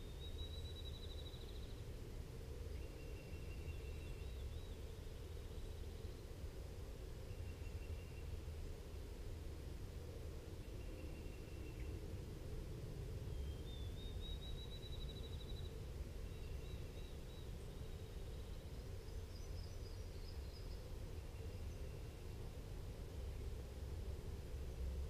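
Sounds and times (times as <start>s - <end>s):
songbirds singing: 0.0s - 8.7s, 10.0s - 24.3s
low background rumble: 0.0s - 25.0s.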